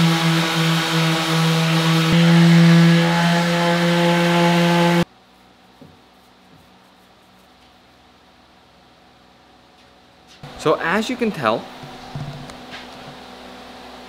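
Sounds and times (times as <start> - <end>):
orbital sander on wood: 0.0 - 5.0.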